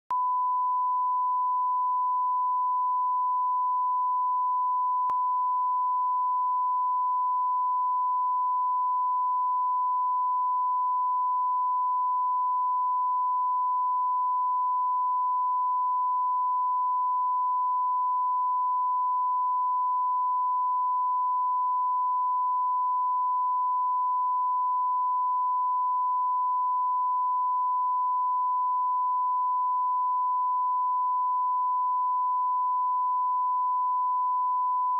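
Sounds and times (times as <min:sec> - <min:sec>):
sine test tone: 0:00.1 - 0:34.9.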